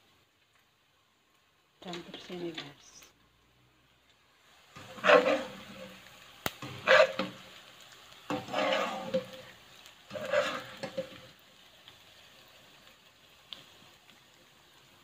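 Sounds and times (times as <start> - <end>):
oil sizzling: 0.0 - 15.0
skimmer sweeping through hot oil: 4.4 - 15.0.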